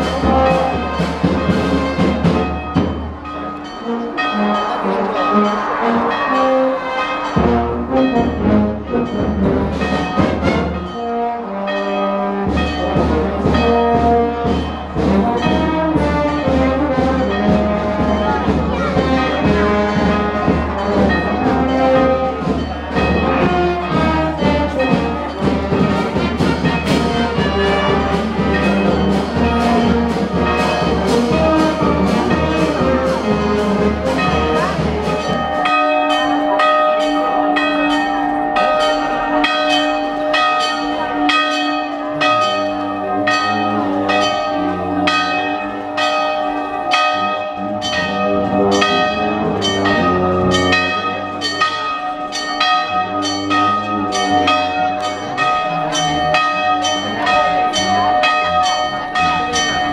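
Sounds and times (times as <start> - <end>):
brass band playing: 0.0 - 59.9
church bells ringing: 0.0 - 59.9.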